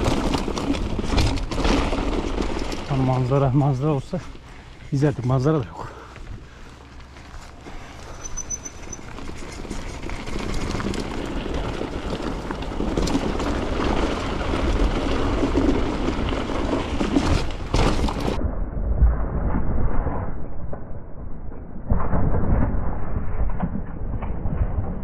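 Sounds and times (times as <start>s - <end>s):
bike rattling over bumps: 0.0s - 18.4s
tyres crunching over stones: 0.0s - 18.4s
wind rumble on microphone: 6.1s - 25.0s.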